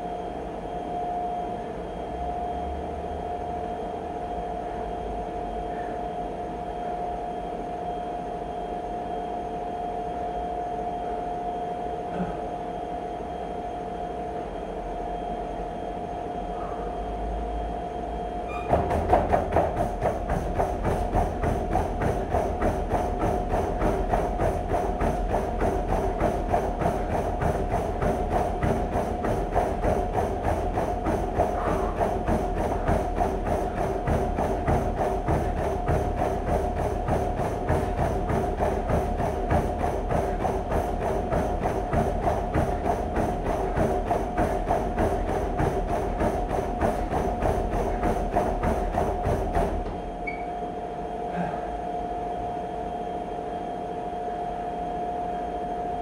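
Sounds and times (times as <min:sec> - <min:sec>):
treadmill motor whine: 0:00.0 - 0:56.0
footfalls on treadmill: 0:18.4 - 0:50.6.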